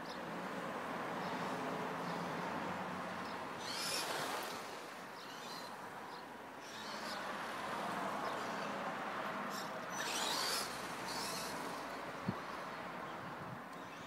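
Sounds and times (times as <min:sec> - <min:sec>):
rc truck motor whine: 0:03.6 - 0:05.9, 0:06.6 - 0:08.8, 0:09.5 - 0:12.7.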